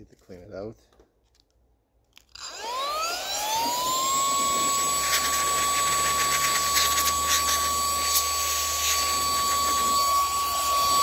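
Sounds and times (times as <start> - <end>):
electric motor whine: 2.4 - 11.0.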